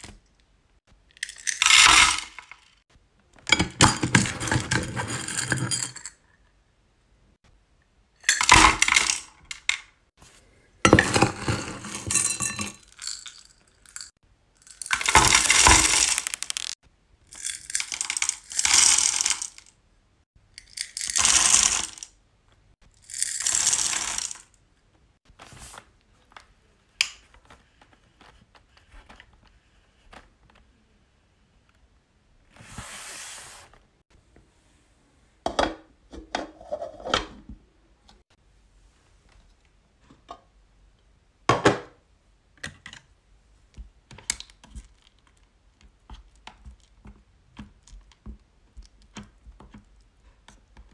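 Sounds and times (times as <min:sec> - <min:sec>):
wooden stick stirring beads: 0:01.2 - 0:02.7, 0:11.0 - 0:19.7, 0:20.6 - 0:22.1, 0:23.0 - 0:24.5
wax beads rattling into pot: 0:01.2 - 0:02.8, 0:11.4 - 0:19.7, 0:20.6 - 0:22.1, 0:23.0 - 0:24.5.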